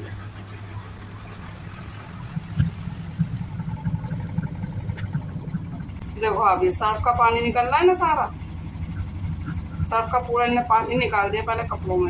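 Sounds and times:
uneven rumble: 0:00.0 - 0:12.0
washing machine motor humming: 0:00.0 - 0:12.0.

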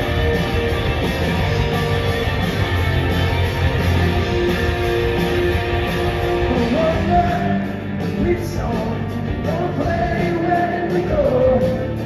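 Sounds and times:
bass guitar: 0:00.0 - 0:12.0
drums: 0:00.0 - 0:12.0
electric guitars: 0:00.0 - 0:12.0
person singing: 0:06.4 - 0:12.0.

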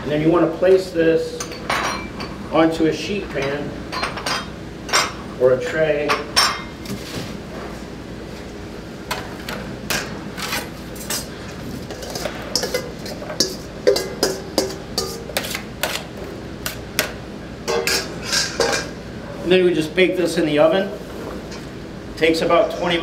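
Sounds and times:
metal spoon clinking on metal: 0:12.0 - 0:15.2.

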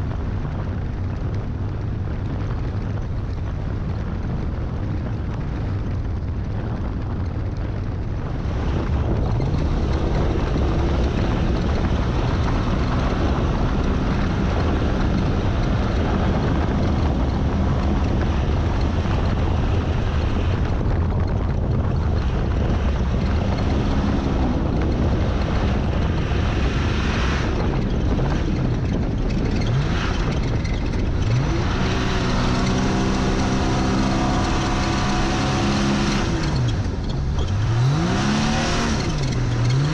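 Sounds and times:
road rumble: 0:00.0 - 0:39.9
wind buffeting: 0:00.0 - 0:39.9
truck engine revving: 0:08.4 - 0:39.9.

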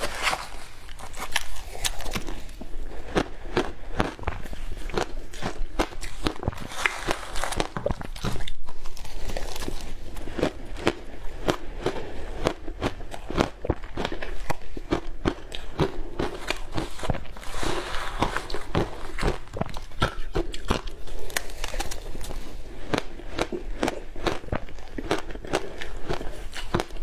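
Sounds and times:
ice crunching when chewed: 0:00.0 - 0:27.0
spoon digging through shaved ice: 0:04.9 - 0:10.8, 0:16.2 - 0:24.6.

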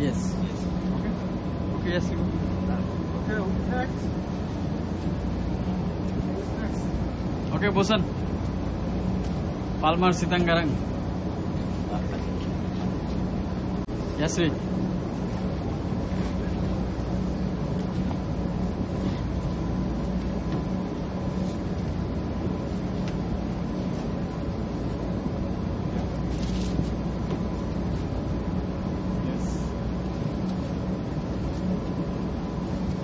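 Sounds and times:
ship engines droning: 0:00.0 - 0:33.0.

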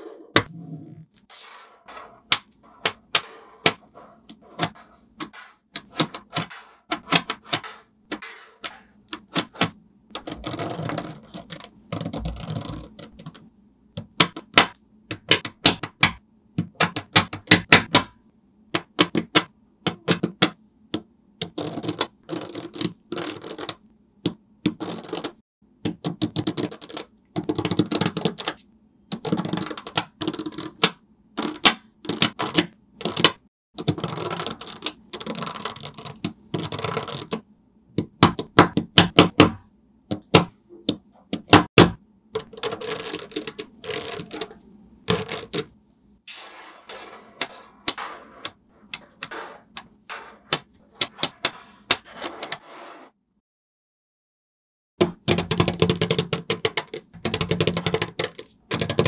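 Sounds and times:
magnetic balls clicking together: 0:55.2 - 0:59.0.

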